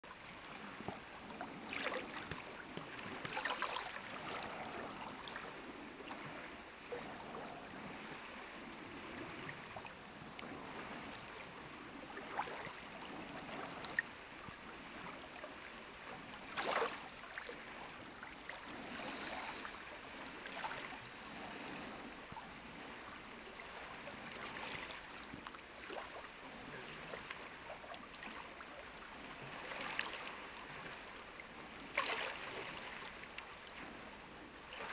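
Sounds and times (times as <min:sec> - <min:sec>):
waves lapping against rocks: 0:00.1 - 0:34.9.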